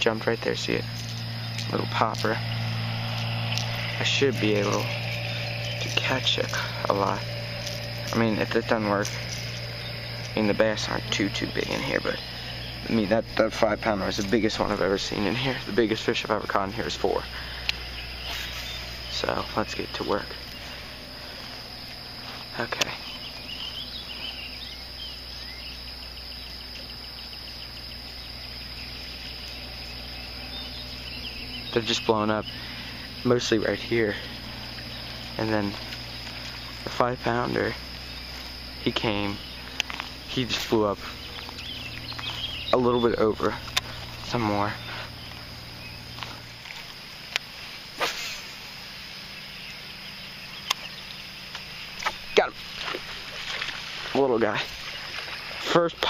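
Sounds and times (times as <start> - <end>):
faint high whine: 0.0 - 56.0
faint low hum: 0.0 - 56.0
high-pitched insect chorus: 0.0 - 56.0
short bird chirps: 17.5 - 19.2.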